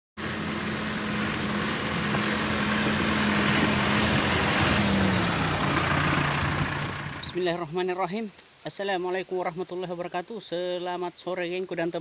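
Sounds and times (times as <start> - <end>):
tractor engine running: 0.2 - 7.5
trailer rolling over gravel: 0.2 - 7.5.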